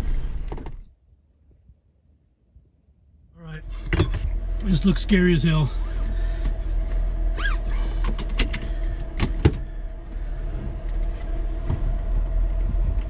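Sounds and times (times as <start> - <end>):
low engine drone: 3.1 - 13.0
brief squeak: 7.4 - 7.8.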